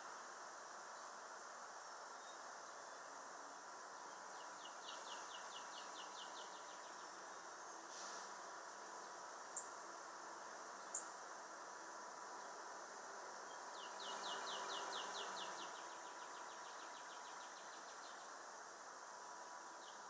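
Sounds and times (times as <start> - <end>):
insects hissing: 0.0 - 20.0
songbird trill: 2.1 - 3.1, 3.9 - 8.2, 9.0 - 9.8, 10.7 - 11.2, 13.4 - 18.7, 19.7 - 20.0.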